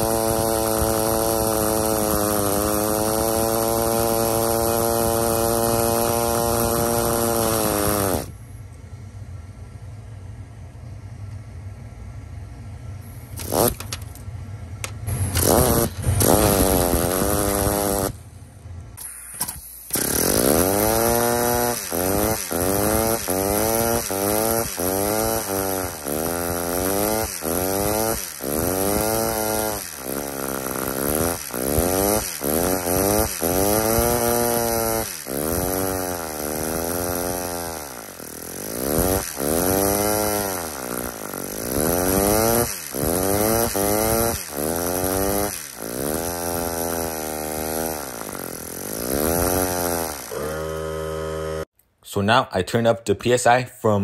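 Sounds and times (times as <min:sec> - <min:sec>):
pneumatic toy engine whining: 0:00.0 - 0:08.4, 0:13.0 - 0:18.3, 0:19.0 - 0:51.7.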